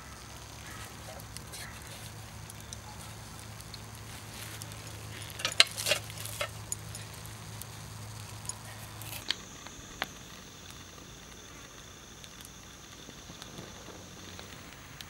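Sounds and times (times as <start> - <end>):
hard objects clinking: 0.6 - 9.8.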